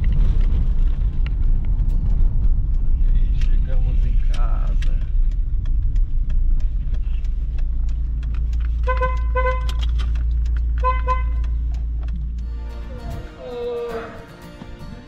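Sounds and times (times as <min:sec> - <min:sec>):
car engine idling: 0:00.0 - 0:15.0
car horn tooting: 0:08.8 - 0:09.8, 0:10.8 - 0:11.4.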